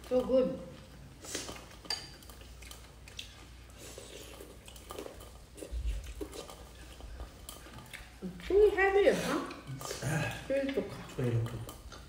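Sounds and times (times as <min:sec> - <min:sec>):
people chewing: 0:00.0 - 0:12.0
cutlery clicking on bowls: 0:01.6 - 0:02.4, 0:09.4 - 0:12.0.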